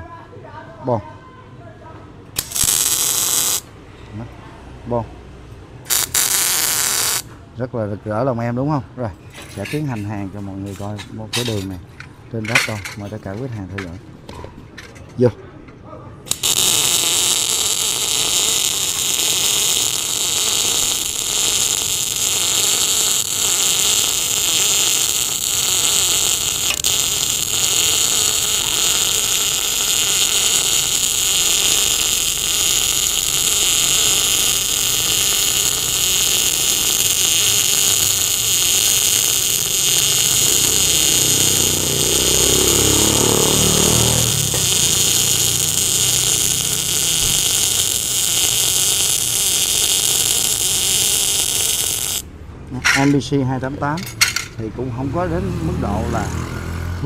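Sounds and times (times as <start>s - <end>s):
welding arc crackling: 2.4s - 3.8s, 5.9s - 7.3s, 16.3s - 53.3s.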